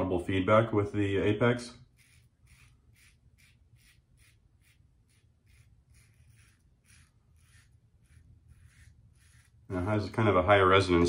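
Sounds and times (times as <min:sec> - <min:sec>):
razor scraping stubble: 0:01.5 - 0:11.0.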